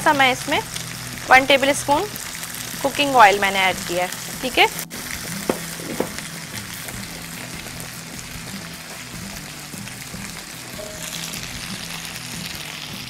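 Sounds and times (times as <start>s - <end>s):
butter and oil sizzling in skillet: 0.0s - 13.0s.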